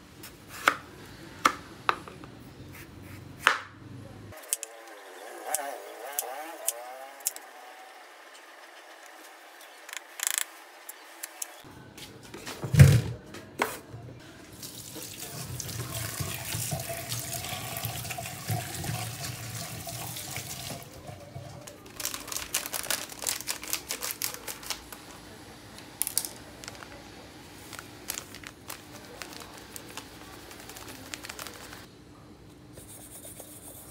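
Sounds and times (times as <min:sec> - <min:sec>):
plastic crinkling: 0:21.7 - 0:25.1, 0:26.0 - 0:27.0, 0:27.6 - 0:31.9.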